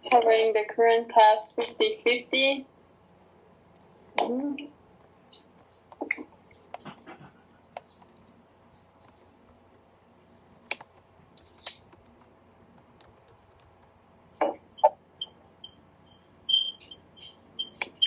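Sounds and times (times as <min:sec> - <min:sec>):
computer keyboard typing: 0:09.0 - 0:09.9, 0:10.6 - 0:14.1.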